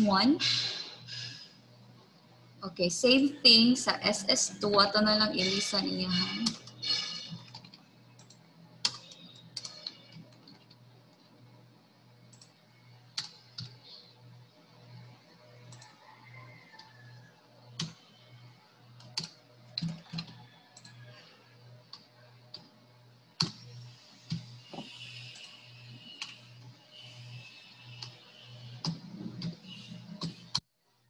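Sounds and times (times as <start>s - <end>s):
steady low hum: 0.0s - 30.6s
keyboard typing: 5.1s - 11.3s, 12.3s - 14.0s, 17.8s - 18.0s, 19.0s - 21.2s, 23.4s - 23.7s, 24.3s - 26.5s, 27.3s - 30.6s.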